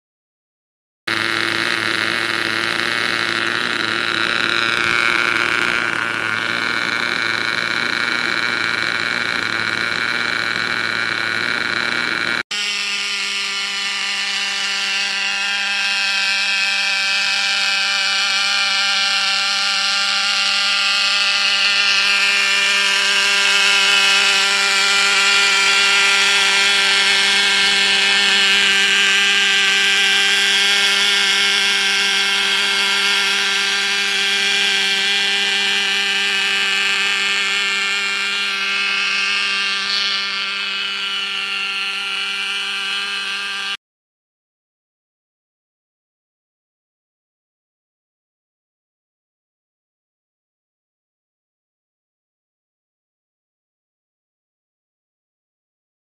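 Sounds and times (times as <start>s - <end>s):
model engine running at high pitch: 1.1s - 43.8s.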